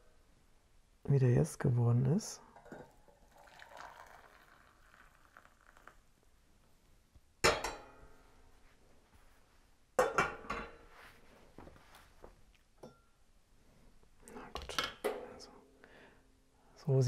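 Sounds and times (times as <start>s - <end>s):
tea trickling into a cup: 2.5s - 6.1s
metal pot clanking on stove grate: 7.4s - 8.0s, 10.0s - 10.8s.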